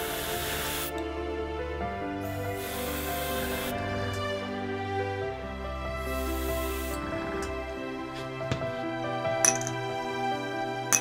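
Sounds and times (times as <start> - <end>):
airbrush spraying hiss: 0.0 - 0.9, 2.2 - 4.0, 5.9 - 7.4
instrumental background music: 0.0 - 11.0.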